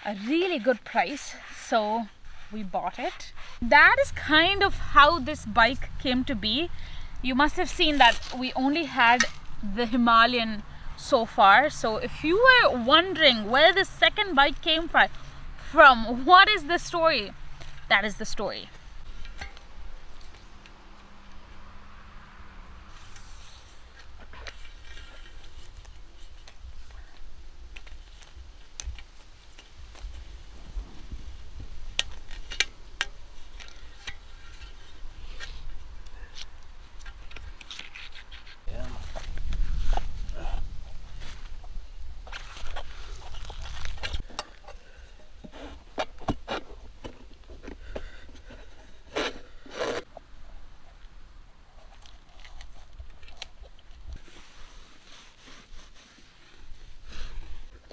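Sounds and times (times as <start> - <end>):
low steady rumble: 1.3 - 28.6
rubbing and scraping: 29.9 - 50.1, 51.8 - 57.9.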